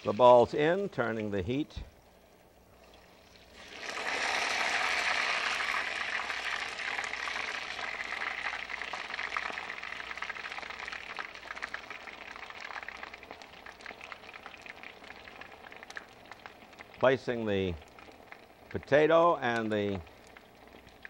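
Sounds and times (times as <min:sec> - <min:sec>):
food sizzling in hot oil: 0:02.7 - 0:21.0
crackling pops: 0:08.4 - 0:18.9, 0:19.5 - 0:21.0.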